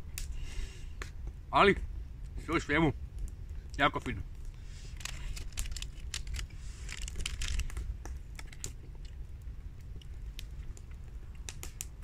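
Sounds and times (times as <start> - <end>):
steady low rumble: 0.0 - 12.0
plastic wrapper crinkling: 4.9 - 7.8.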